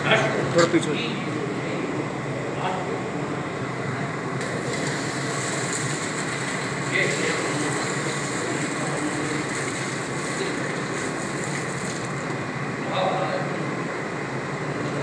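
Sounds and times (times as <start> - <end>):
murmur of voices: 0.0 - 4.8.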